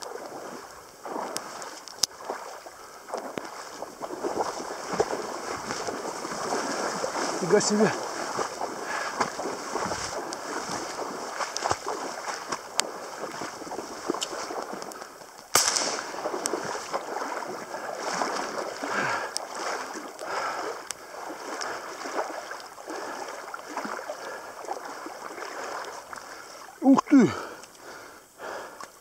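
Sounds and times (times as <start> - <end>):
wading through reeds and water: 0.0 - 29.0
wind and rain on microphone: 0.0 - 29.0
sharp bang: 15.5 - 16.1.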